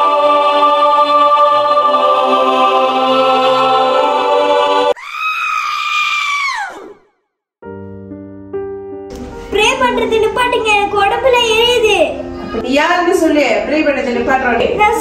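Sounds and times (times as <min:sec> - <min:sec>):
high-pitched scream: 0:04.9 - 0:07.1.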